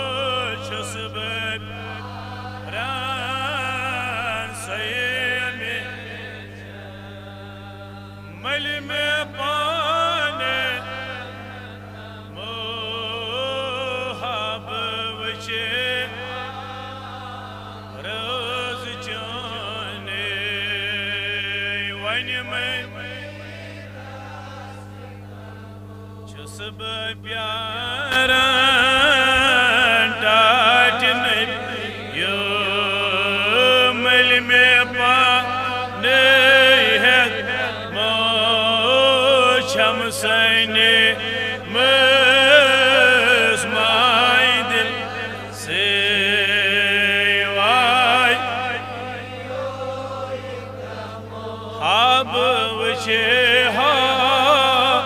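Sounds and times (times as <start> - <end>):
man singing into microphone: 0.0 - 2.0, 2.7 - 16.5, 18.0 - 23.2, 26.3 - 49.8, 51.6 - 55.0
steady low hum: 0.0 - 55.0.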